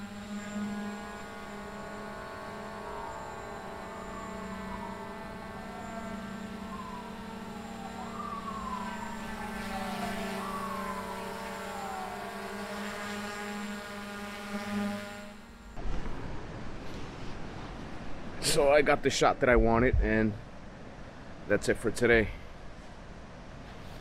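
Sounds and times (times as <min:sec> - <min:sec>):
drone propellers whining: 0:00.0 - 0:15.8.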